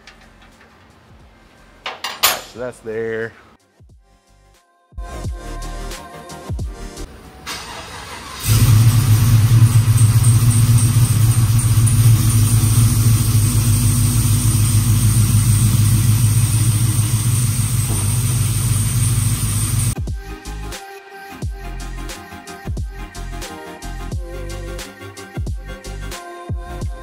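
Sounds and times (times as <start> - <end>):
loud truck engine running: 8.4 - 20.0.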